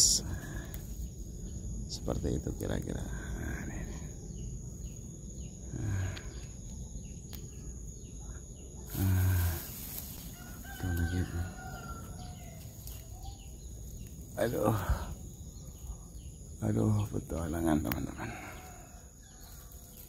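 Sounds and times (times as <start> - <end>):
close rustles: 9.5 - 11.1
rooster crowing: 10.3 - 13.4, 18.2 - 20.0.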